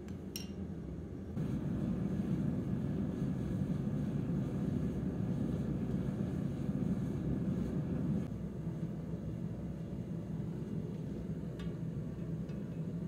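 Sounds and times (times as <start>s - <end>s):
metallic clink: 0.3s - 0.6s
gas forge burner roaring: 0.8s - 13.0s.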